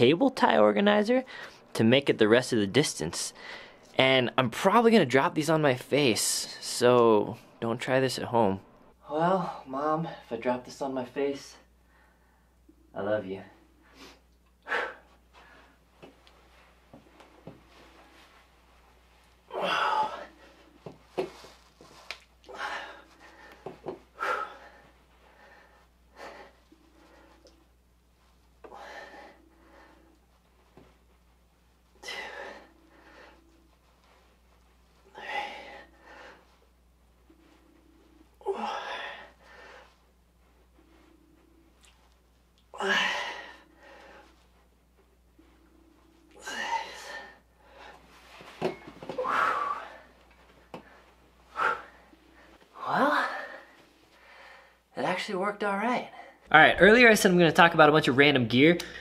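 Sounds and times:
man grunting and breathing: 19.5s - 20.5s, 28.6s - 30.1s, 32.0s - 33.4s, 35.1s - 36.4s, 38.4s - 39.8s, 42.7s - 44.2s, 46.3s - 48.0s, 49.2s - 50.1s, 52.7s - 53.8s
man breathing hard under strain: 28.6s - 30.2s.

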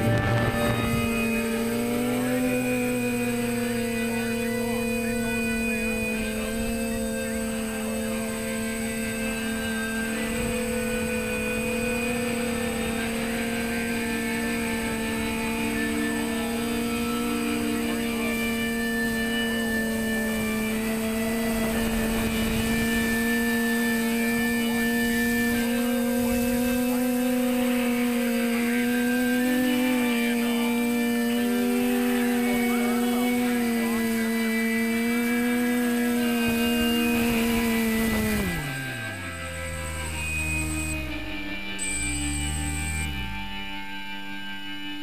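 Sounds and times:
quadcopter propellers humming: 0.0s - 45.0s.

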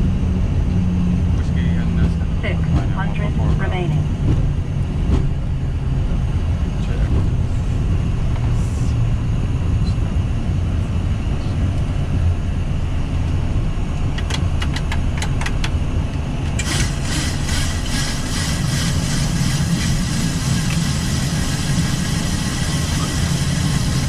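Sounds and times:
engines and wheels rumbling: 0.0s - 24.0s
sharp clicks: 14.0s - 15.8s.

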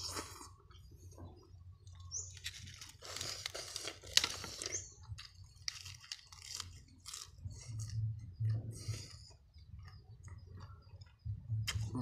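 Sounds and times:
crunchy chewing: 0.0s - 12.0s
lettuce leaves tearing: 2.3s - 8.0s
lettuce snapping: 2.4s - 7.3s.

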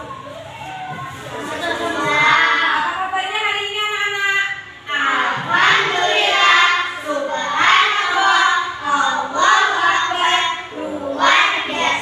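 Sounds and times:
children singing together: 1.3s - 2.9s, 4.8s - 12.0s.

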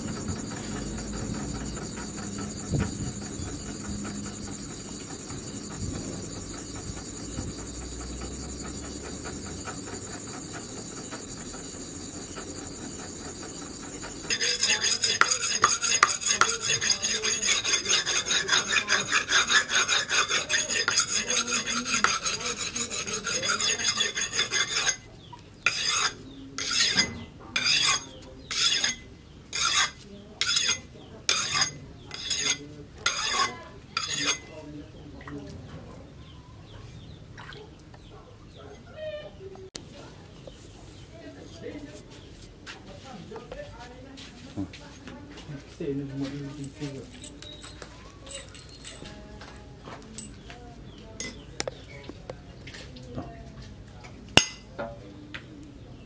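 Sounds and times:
insects chirring: 0.0s - 34.6s
blade scraping on whetstone: 14.2s - 34.6s, 46.6s - 49.1s, 50.2s - 50.4s, 54.4s - 55.4s.

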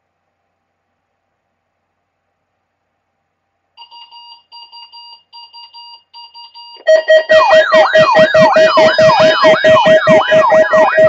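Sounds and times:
alarm beeping: 3.8s - 11.0s
siren-like warble: 6.8s - 11.0s.

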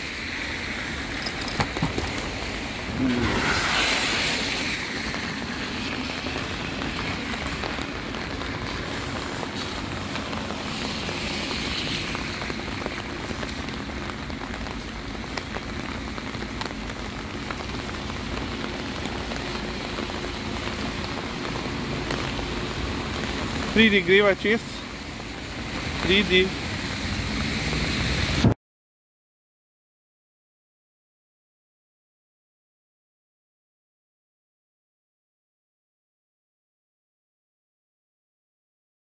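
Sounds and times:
heavy rain falling: 0.0s - 28.5s.

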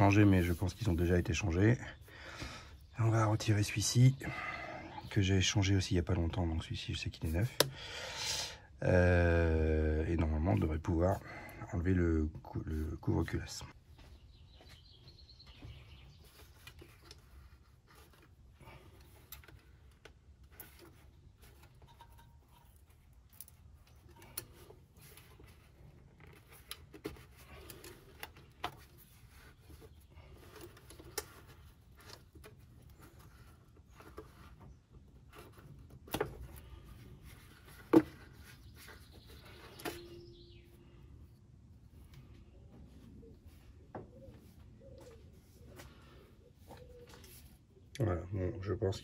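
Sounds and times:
small clicks and knocks of hoses: 15.5s - 40.1s.

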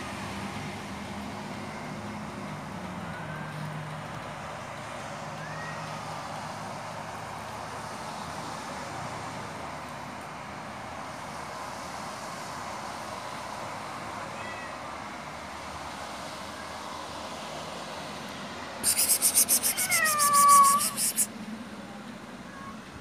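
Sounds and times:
cat yowling: 5.4s - 6.0s, 14.2s - 14.8s, 18.8s - 21.3s.

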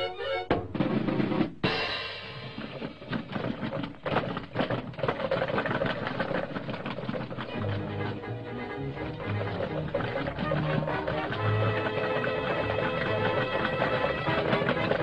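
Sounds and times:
cartoon orchestral music: 0.0s - 0.6s, 7.5s - 15.0s
fast drumming and crashing percussion: 0.5s - 7.9s, 9.1s - 15.0s.

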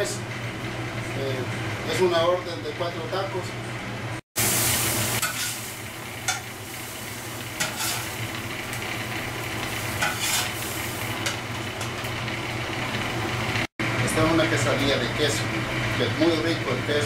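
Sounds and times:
quesadilla sizzling on griddle: 4.4s - 13.7s
spatula clattering: 5.2s - 5.6s, 6.2s - 6.5s, 7.6s - 8.2s, 9.9s - 10.6s.

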